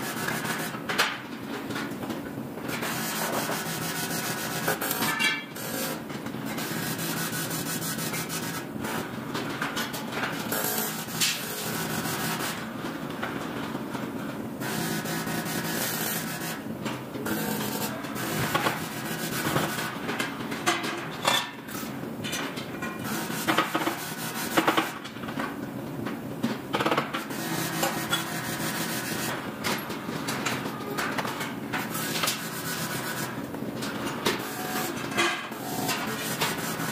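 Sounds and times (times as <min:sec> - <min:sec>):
metal ladder parts clanking: 0:05.0 - 0:05.5.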